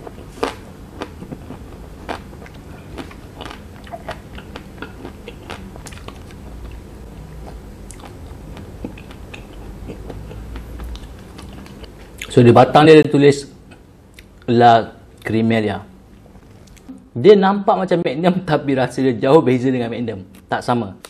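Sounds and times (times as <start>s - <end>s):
crisp chewing crunches: 0.0s - 6.8s
wet mouth clicks: 2.4s - 6.8s, 7.8s - 12.3s.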